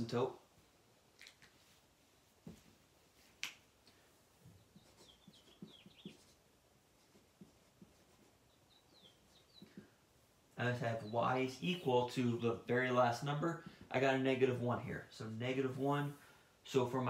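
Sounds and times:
marker squeaking on whiteboard: 4.5 - 9.8.

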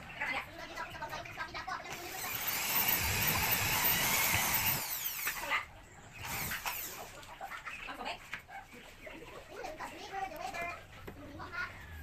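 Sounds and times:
electric drill boring into wood: 1.9 - 5.6, 6.2 - 7.0.

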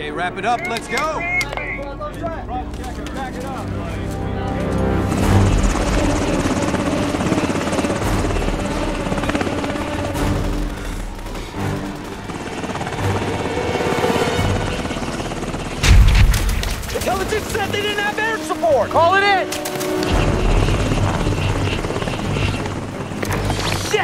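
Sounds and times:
film score music: 0.0 - 24.0
helicopter rotor chopping: 0.0 - 24.0
heavy low boom: 15.8 - 16.8.

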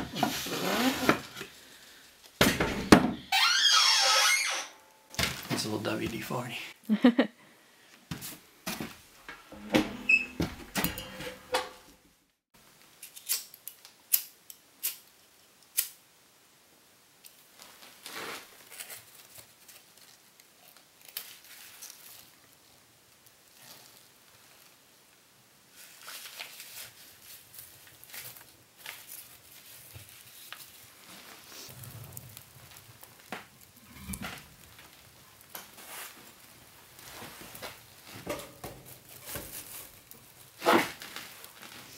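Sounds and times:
fire crackling in a stove: 0.0 - 6.9, 7.8 - 41.9
knocks and squeaks: 2.8 - 5.0, 9.6 - 11.9
sharp fire snaps: 12.8 - 16.1, 17.2 - 38.1, 38.8 - 41.9
paper crumpling: 25.7 - 38.1.

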